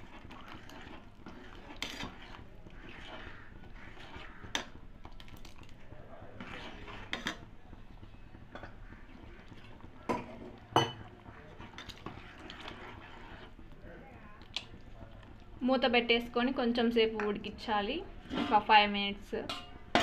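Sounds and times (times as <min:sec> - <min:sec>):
metal ladle stirring in metal pot: 0:00.0 - 0:16.4, 0:17.0 - 0:20.0
ladle clinking on pot: 0:10.1 - 0:11.1, 0:19.4 - 0:20.0.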